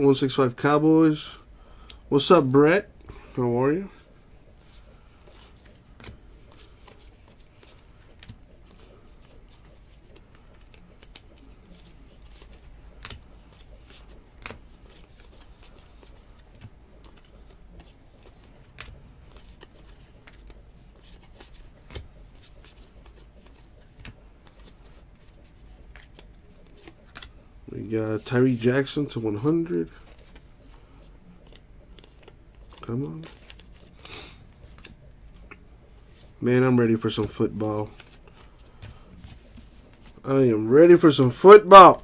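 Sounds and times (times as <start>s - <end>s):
cards sliding against each other: 4.5s - 27.4s, 29.8s - 36.4s
card edges clicking: 5.4s - 27.4s.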